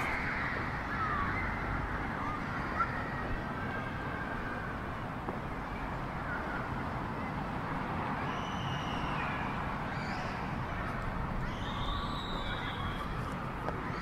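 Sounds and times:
street ambience: 0.0 - 14.0.

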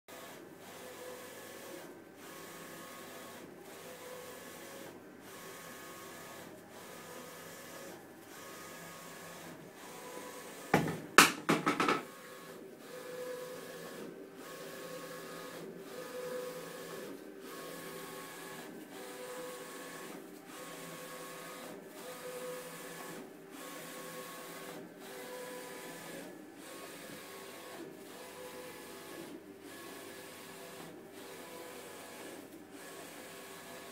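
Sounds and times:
printer head whirring: 8.6 - 23.0
sharp knocks: 10.8 - 12.1.

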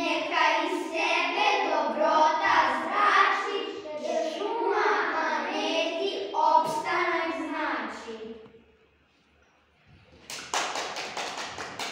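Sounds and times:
children singing: 0.0 - 8.2.

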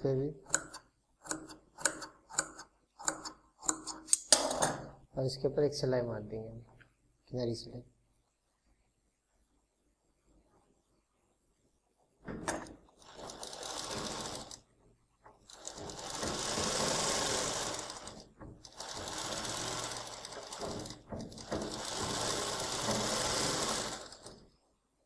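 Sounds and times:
sewing machine running: 13.0 - 14.6, 15.5 - 24.4.

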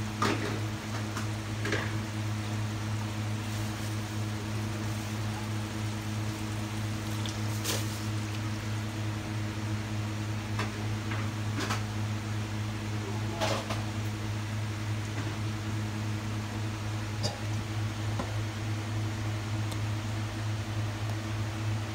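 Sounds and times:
food popping in a wok: 0.0 - 9.2
fan motor humming: 0.0 - 21.9.

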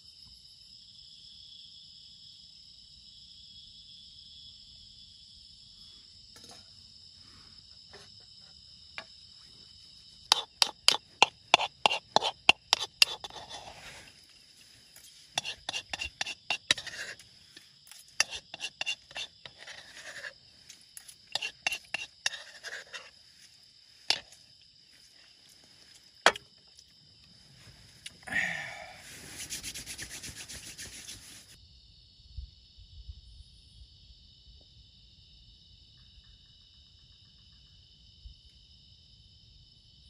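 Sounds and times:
insects chirring: 0.0 - 40.0
rubbing and scraping: 10.2 - 26.4, 29.0 - 31.6.

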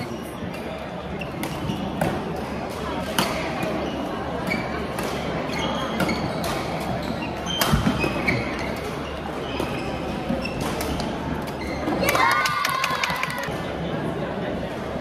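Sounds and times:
murmur of voices: 0.0 - 15.0
shoe squeaks on court floor: 3.8 - 12.0.

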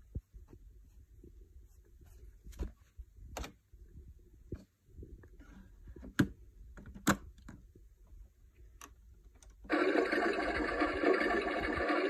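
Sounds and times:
electronic washing sound effect: 9.7 - 12.0.

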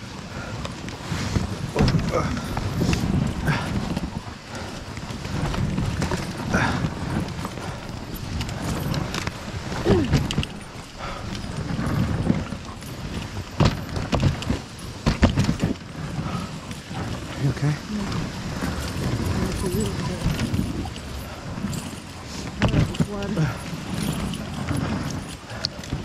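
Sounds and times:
sled runners hissing on snow: 0.0 - 26.0
dogs padding: 1.6 - 26.0.

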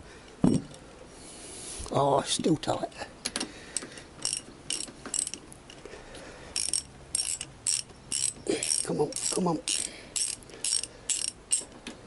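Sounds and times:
socket ratchet clicking: 3.8 - 5.4, 6.6 - 11.7.

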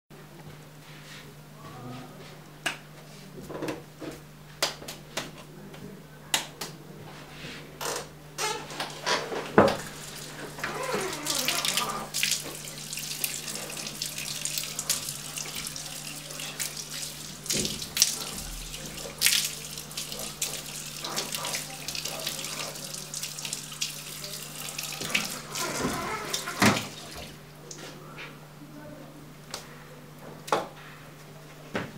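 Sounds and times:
water spraying into basin: 9.8 - 27.4.

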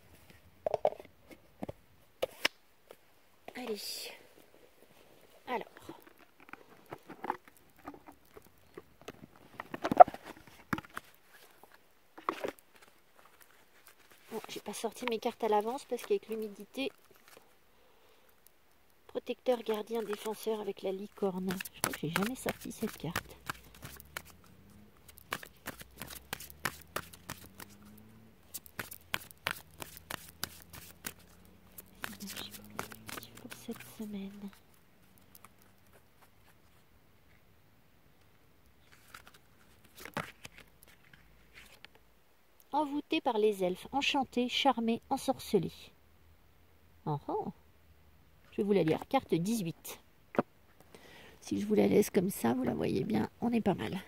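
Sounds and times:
cards being shuffled: 9.4 - 17.5, 19.5 - 36.8, 38.8 - 41.9.

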